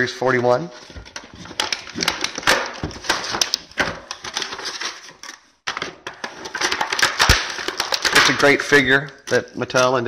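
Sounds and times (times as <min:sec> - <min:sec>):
cardboard and plastic packaging rustling: 0:00.4 - 0:10.0.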